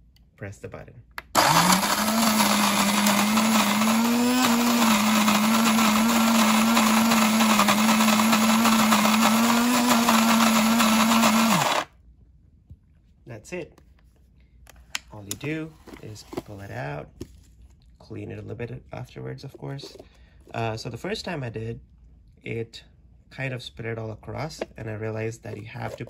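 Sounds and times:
grinder motor hum: 0:01.3 - 0:11.9
coffee grinder grinding: 0:01.4 - 0:11.9.

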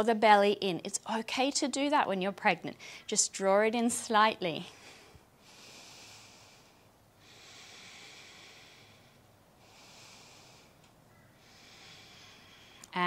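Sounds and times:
woman breathing: 0:02.8 - 0:03.1, 0:04.6 - 0:13.0.

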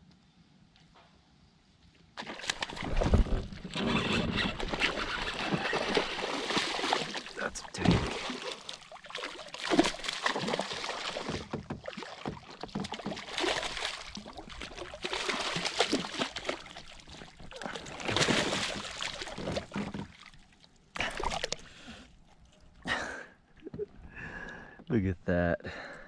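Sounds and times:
water splashing and sloshing: 0:02.2 - 0:24.1
knocks against boat: 0:11.2 - 0:13.3.

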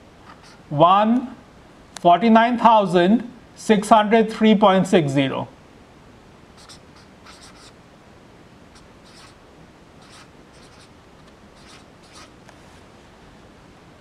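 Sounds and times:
marker scratching on whiteboard: 0:06.6 - 0:07.8, 0:08.8 - 0:09.4, 0:10.0 - 0:12.4.

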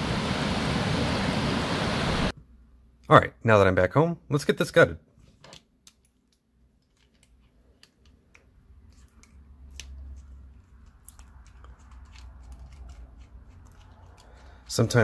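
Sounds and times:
padlock clicks and scraping: 0:05.5 - 0:14.7.

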